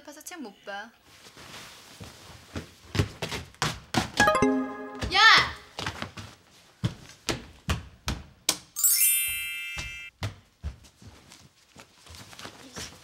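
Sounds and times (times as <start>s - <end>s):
ringing chime sound effect: 4.2s - 5.6s, 8.8s - 10.1s.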